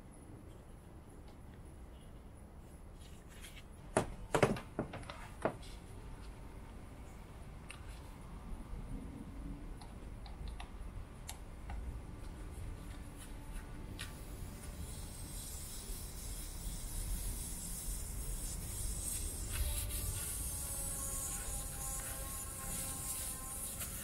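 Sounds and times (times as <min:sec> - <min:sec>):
high hiss: 0:14.0 - 0:24.0.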